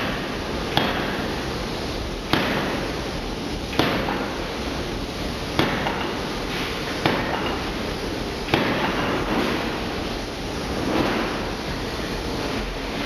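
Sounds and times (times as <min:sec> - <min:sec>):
steady background noise: 0:00.0 - 0:13.0
forging hammer striking steel: 0:05.6 - 0:06.2.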